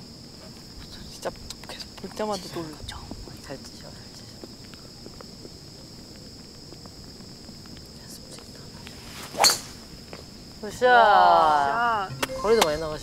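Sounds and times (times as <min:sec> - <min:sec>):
insects chirring: 0:00.0 - 0:13.0
golf club striking ball: 0:09.4 - 0:09.8.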